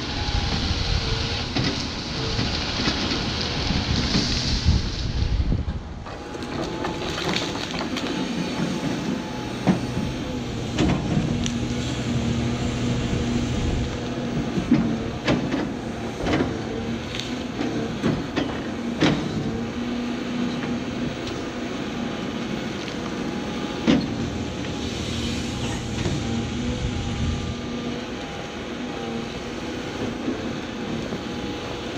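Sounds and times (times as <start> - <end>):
excavator diesel engine running: 0.0 - 31.9
sharp cracks and knocks of wood: 6.2 - 10.1.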